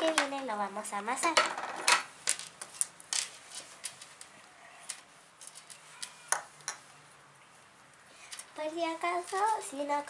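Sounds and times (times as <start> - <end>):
roller tapping on wooden table: 1.3 - 2.5.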